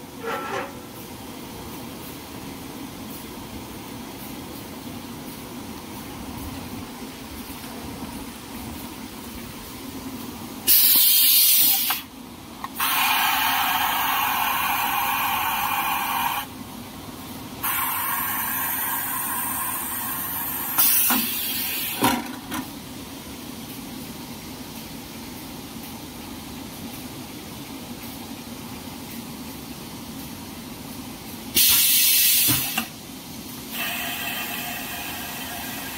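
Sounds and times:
compressed air hissing: 10.6s - 12.1s, 12.8s - 16.5s, 17.6s - 22.0s, 31.5s - 33.0s, 33.7s - 35.9s.

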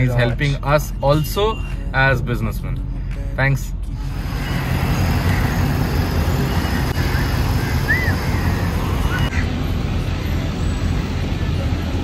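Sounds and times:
road traffic noise: 0.0s - 12.0s
low engine rumble: 2.6s - 12.0s.

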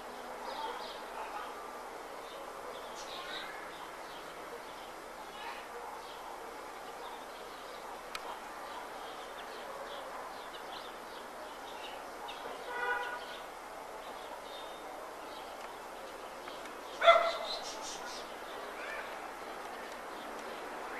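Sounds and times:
steady city hum: 0.0s - 20.9s.

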